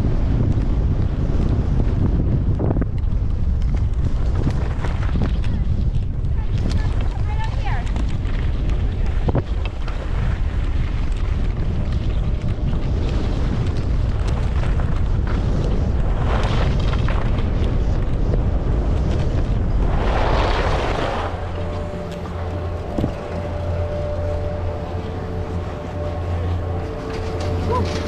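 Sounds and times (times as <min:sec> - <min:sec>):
wind buffeting microphone: 0:00.0 - 0:28.0
skis scraping on snow: 0:03.4 - 0:28.0
steady hum: 0:11.4 - 0:28.0.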